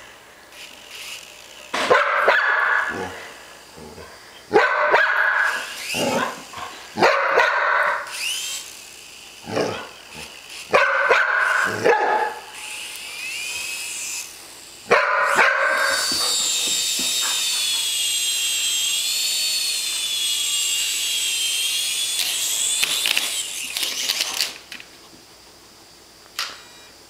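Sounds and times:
toy helicopter motor whine: 0.0 - 24.9, 26.4 - 27.0
dog barking: 1.9 - 3.2, 4.5 - 6.4, 7.0 - 8.1, 10.7 - 12.5, 14.9 - 16.5
clicks: 26.2 - 26.6.

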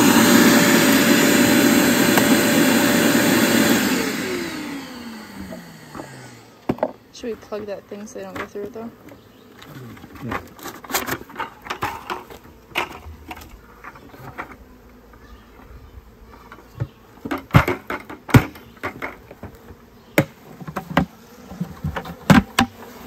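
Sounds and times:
honeybees buzzing in bucket: 0.0 - 23.0
plastic bucket knocks and clunks: 17.3 - 19.4.

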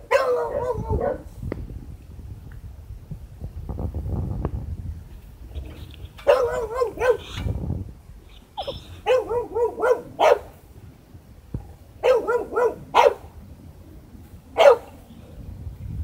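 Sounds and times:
dog barking: 0.0 - 1.3, 6.2 - 7.4, 8.6 - 10.6, 12.0 - 13.3, 14.6 - 15.0
dog whining yips: 6.2 - 7.5, 8.3 - 10.4.

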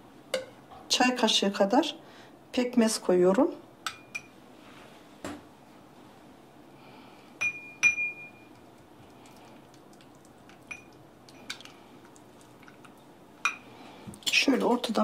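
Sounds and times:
utensil clinking glass bowl: 7.4 - 8.6, 10.5 - 11.7, 12.6 - 13.7.

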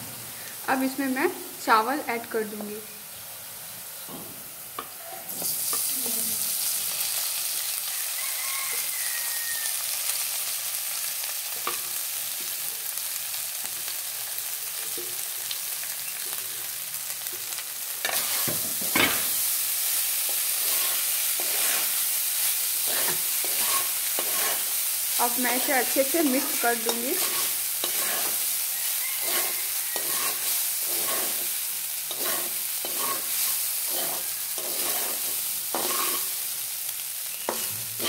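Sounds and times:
oil sizzling in a pan: 0.0 - 38.0
spatula scraping and stirring rice: 18.0 - 36.5, 37.4 - 38.0.

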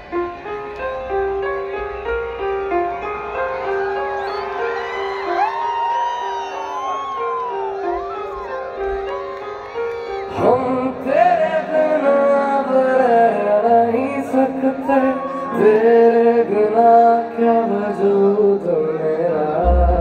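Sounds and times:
amplified live band music: 0.0 - 20.0
person singing melody: 10.3 - 20.0.

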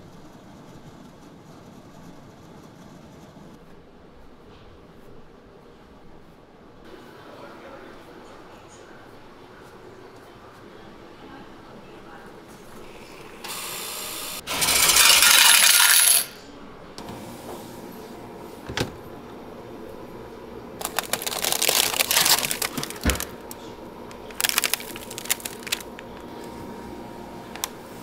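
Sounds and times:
banknote machine whirring: 13.4 - 28.0
coins clattering into tray: 14.5 - 16.4
plastic wrappers crinkling: 20.8 - 26.3.

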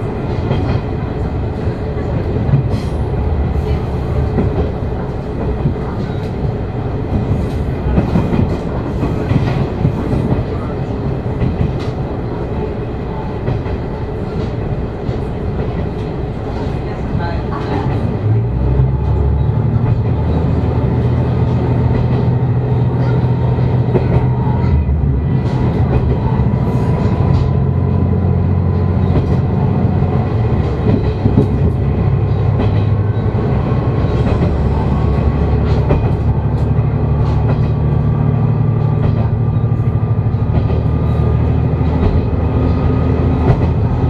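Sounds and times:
railcar engine drone: 0.0 - 44.0
wheels clicking on rails: 13.4 - 44.0.

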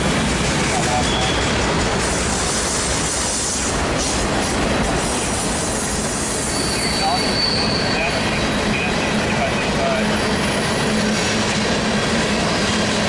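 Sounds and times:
train wheels on rails: 0.0 - 13.0
high wheel squeal: 0.9 - 1.6, 5.1 - 11.4.

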